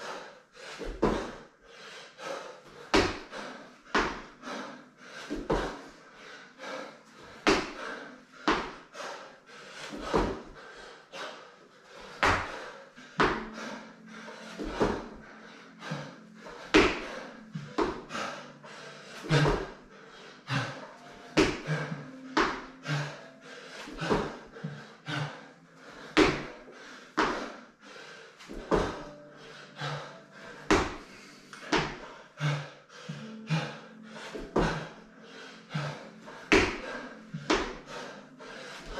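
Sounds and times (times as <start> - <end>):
hands and feet thudding on mat: 9.9 - 10.5, 15.9 - 18.1, 20.5 - 22.7, 28.5 - 29.2, 35.8 - 37.9.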